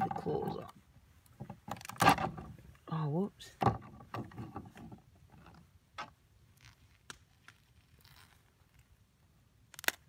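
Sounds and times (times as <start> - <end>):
crayfish shell cracking: 9.7 - 10.0.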